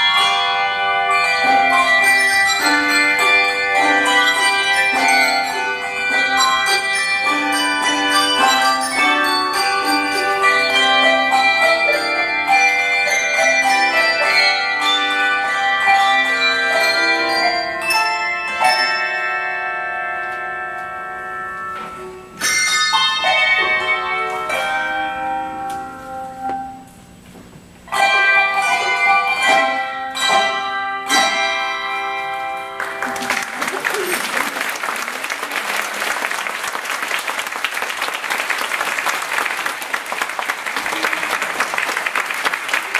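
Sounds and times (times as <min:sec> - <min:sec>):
handbell choir ringing: 0:00.0 - 0:26.8, 0:27.9 - 0:36.7
sustained bell chord: 0:00.0 - 0:26.8
audience applauding: 0:32.8 - 0:42.9.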